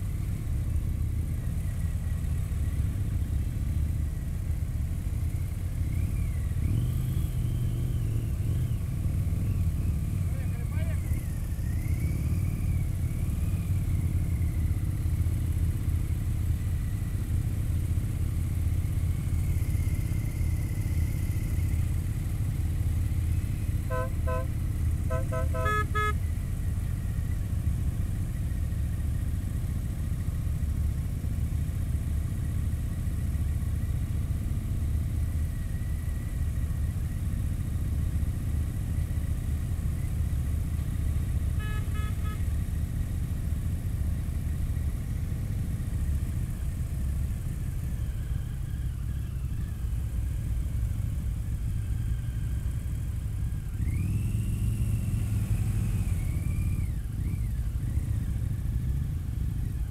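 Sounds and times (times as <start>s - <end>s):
motorcycle engine running: 0.0s - 59.9s
short horn toots: 23.8s - 26.2s, 41.5s - 42.6s.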